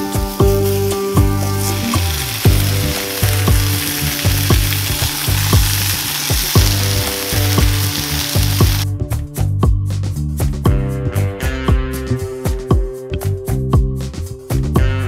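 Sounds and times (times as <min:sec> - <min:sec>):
food sizzling on griddle: 0:00.0 - 0:08.8
background music with beat: 0:00.0 - 0:15.0.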